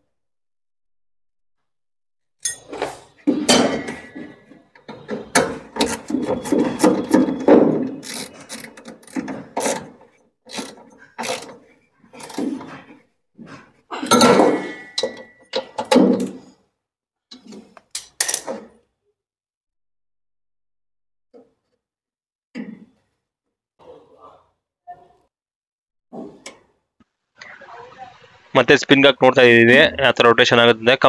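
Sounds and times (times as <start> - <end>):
ringing metal clink: 2.4 - 2.8, 14.1 - 15.7
spanner clicks and clanks: 4.7 - 12.6.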